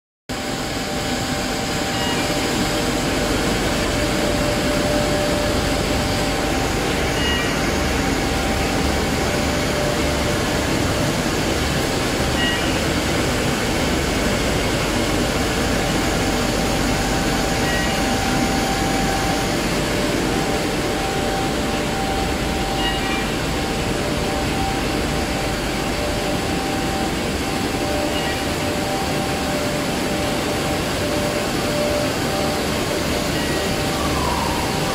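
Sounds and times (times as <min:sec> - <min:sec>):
faint high chirp: 0:01.9 - 0:02.4, 0:06.9 - 0:07.6, 0:12.4 - 0:12.9, 0:17.6 - 0:18.1, 0:22.7 - 0:23.4, 0:28.0 - 0:28.5.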